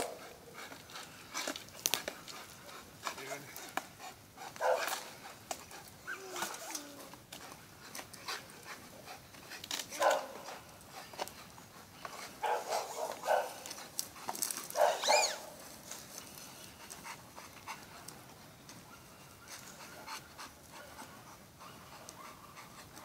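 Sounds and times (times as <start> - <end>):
dog barking and yelping: 4.6 - 5.1, 10.0 - 10.5, 12.4 - 13.6, 14.6 - 15.6.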